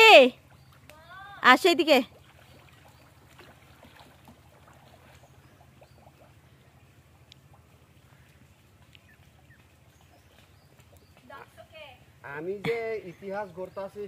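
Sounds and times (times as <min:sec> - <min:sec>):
faint ticks: 0:07.2 - 0:07.5, 0:08.2 - 0:09.7.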